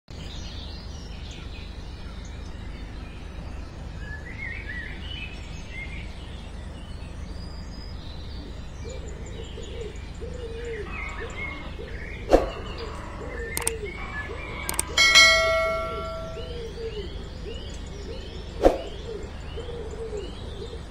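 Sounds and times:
birds chirping: 0:08.9 - 0:20.9.

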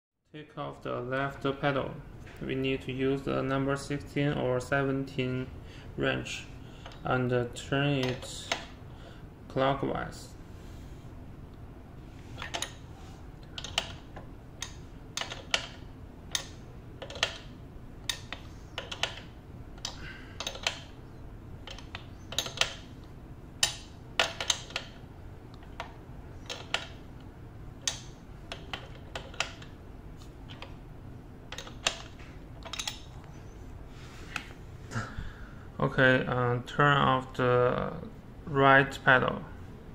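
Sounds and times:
wrench clicking on metal pedal: 0:08.0 - 0:08.8, 0:12.4 - 0:12.8, 0:13.4 - 0:21.0, 0:21.6 - 0:22.9, 0:23.6 - 0:25.0, 0:25.6 - 0:27.0, 0:27.8 - 0:29.8, 0:31.5 - 0:33.2.

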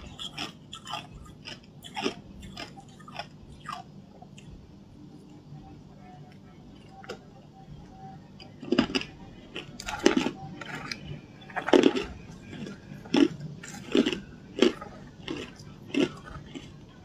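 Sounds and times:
ice being chewed crunching: 0:00.0 - 0:04.5, 0:08.4 - 0:17.0.

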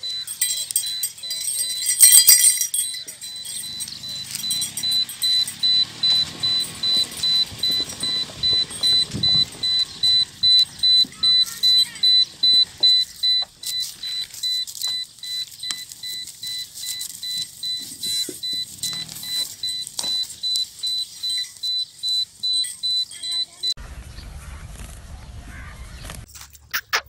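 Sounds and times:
high-pitched car warning beeps: 0:00.0 - 0:23.8.

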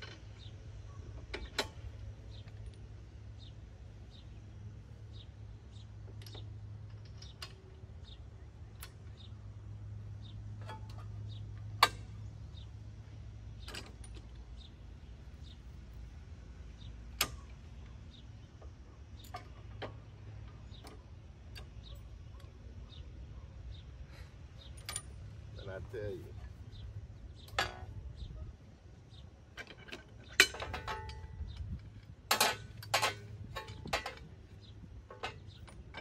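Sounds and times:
low steady hum: 0:00.0 - 0:36.0
sharp metal knocks: 0:32.3 - 0:34.4.

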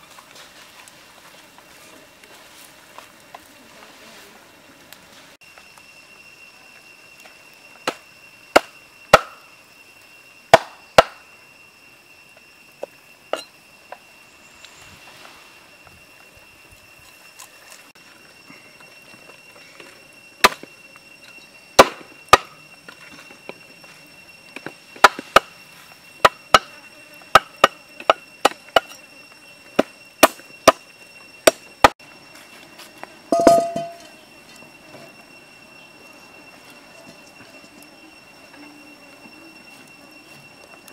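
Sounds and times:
cleaver chopping on wooden board: 0:08.6 - 0:09.3.

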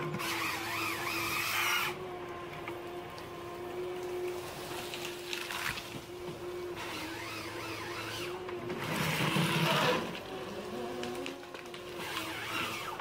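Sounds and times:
engine and hydraulic hum: 0:00.0 - 0:13.0
harvester head rasping: 0:06.8 - 0:10.2.

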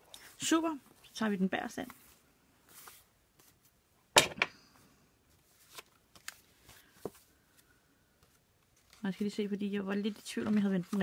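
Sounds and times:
paper rustling: 0:01.8 - 0:03.8, 0:05.3 - 0:11.0.

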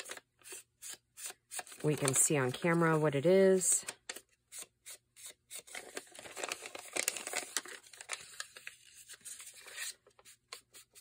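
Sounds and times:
paper crinkling and rustling: 0:00.0 - 0:03.0, 0:05.5 - 0:11.0.

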